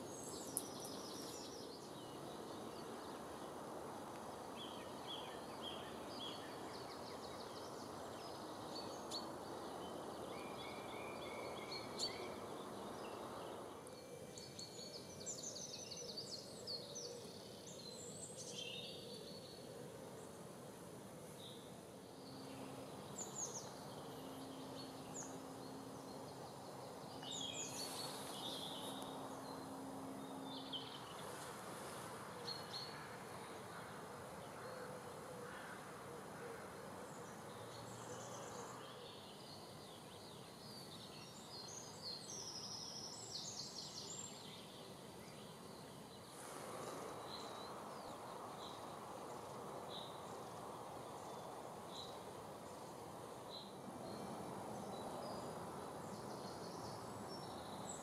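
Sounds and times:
steady background noise: 0:00.0 - 0:58.0
low steady hum: 0:19.3 - 0:34.4.

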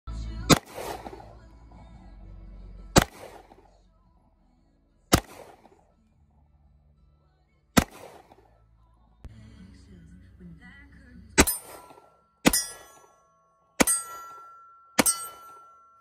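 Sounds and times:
pistol shots with echo: 0:00.5 - 0:01.4, 0:03.0 - 0:03.8, 0:05.1 - 0:05.9, 0:07.7 - 0:08.6, 0:11.4 - 0:13.1, 0:13.8 - 0:15.8.

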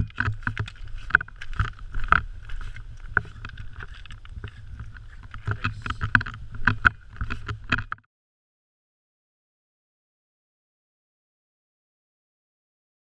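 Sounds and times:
footsteps crunching on pebbles: 0:00.0 - 0:07.9
low wind rumble on microphone: 0:00.0 - 0:08.0.

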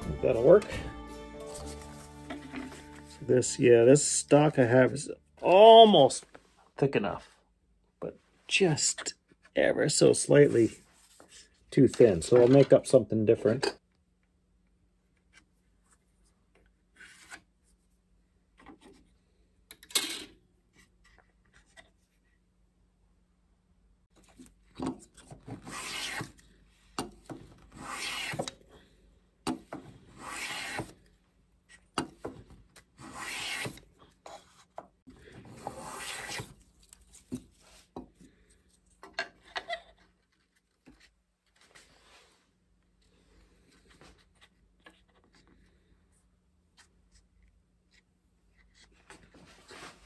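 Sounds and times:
hand plane shaving wood: 0:27.8 - 0:28.5, 0:30.1 - 0:30.9, 0:33.0 - 0:33.8, 0:35.5 - 0:36.5.

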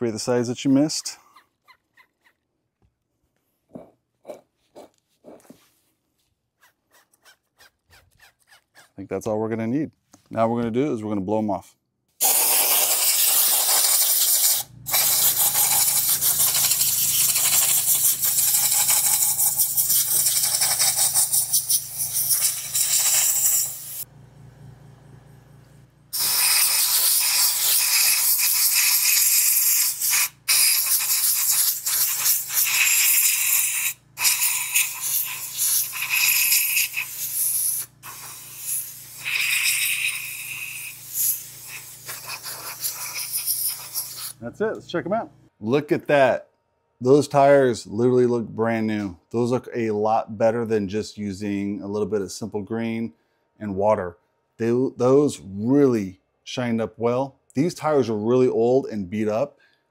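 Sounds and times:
compressed air hissing: 0:12.2 - 0:24.1, 0:26.1 - 0:44.4.

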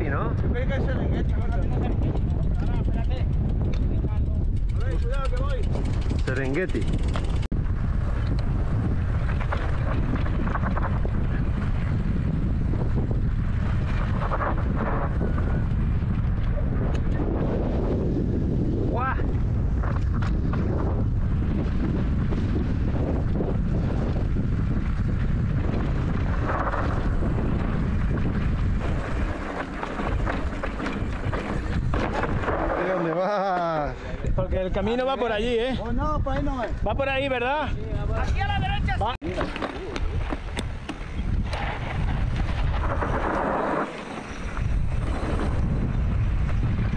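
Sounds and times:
wind buffeting microphone: 0:00.0 - 0:46.9.

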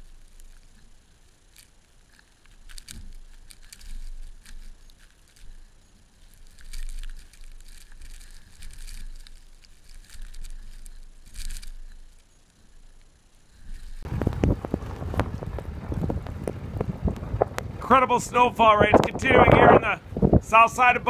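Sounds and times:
fine crackle: 0:00.0 - 0:21.0
wind rumbling on microphone: 0:13.5 - 0:21.0
wind gusting: 0:13.6 - 0:21.0.

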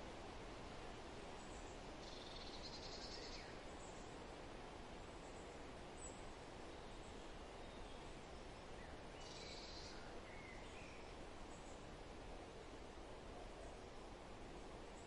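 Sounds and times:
outdoor background noise: 0:00.0 - 0:15.0
faint bird calls: 0:01.5 - 0:04.0, 0:08.9 - 0:11.8.

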